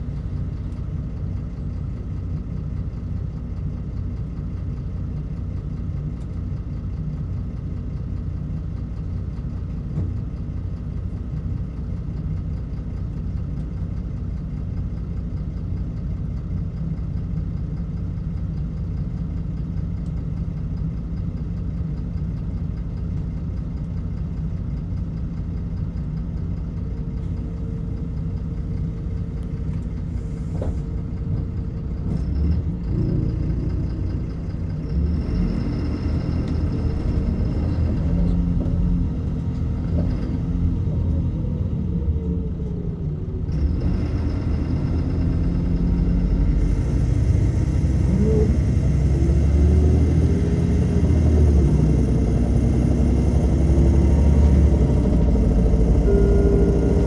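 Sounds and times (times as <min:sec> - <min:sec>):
bus diesel engine idling: 0:00.0 - 0:57.0
faint whine: 0:55.1 - 0:57.0.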